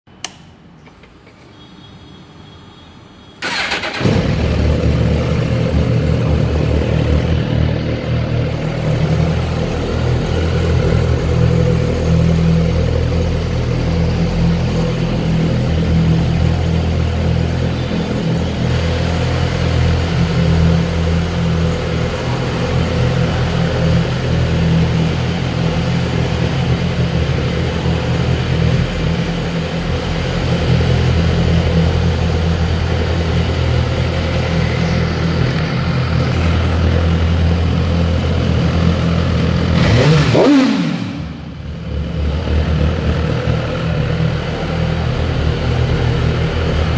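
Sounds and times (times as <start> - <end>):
motorcycle engine idling: 3.4 - 46.9.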